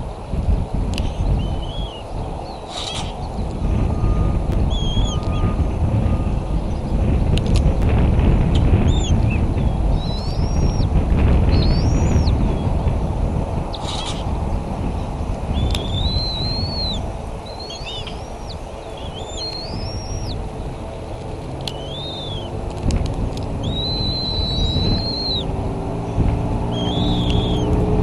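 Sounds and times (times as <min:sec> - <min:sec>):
low steady hum: 0:00.0 - 0:28.0
steady low rumble: 0:00.0 - 0:28.0
high whistled bird calls: 0:01.0 - 0:07.0, 0:08.8 - 0:10.9, 0:11.5 - 0:12.8, 0:13.7 - 0:21.0, 0:21.6 - 0:22.6, 0:23.5 - 0:25.6, 0:26.6 - 0:28.0.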